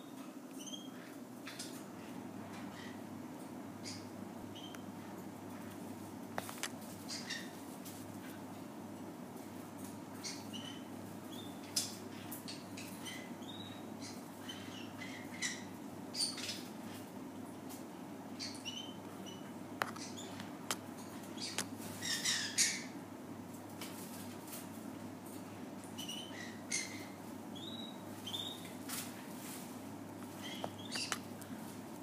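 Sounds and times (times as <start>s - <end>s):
parrot chirping and squeaking: 0.6s - 1.1s, 21.4s - 22.9s, 30.4s - 31.2s.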